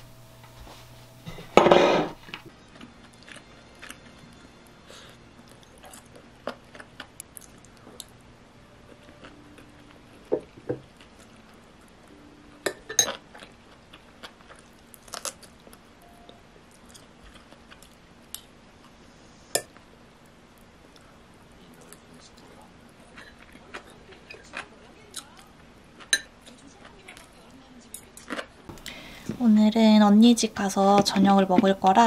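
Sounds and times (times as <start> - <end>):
soft chewing: 2.6 - 12.2, 13.1 - 19.0, 20.5 - 29.4
cutlery clinking on ceramic bowl: 12.7 - 13.2.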